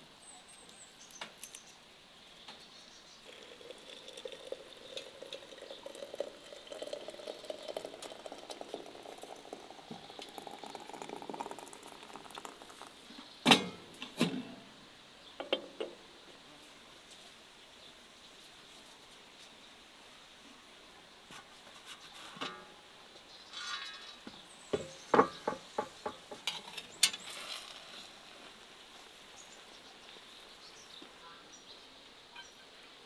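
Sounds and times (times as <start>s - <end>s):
water pouring into teapot: 3.2s - 13.2s.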